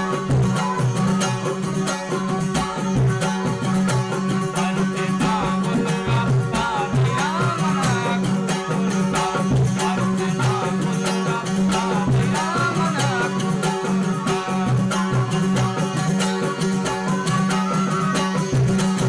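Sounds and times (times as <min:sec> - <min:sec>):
bowed fiddle: 0:00.0 - 0:19.0
hand drum beat: 0:00.0 - 0:19.0
plucked lute: 0:00.0 - 0:19.0
man singing: 0:04.3 - 0:16.0.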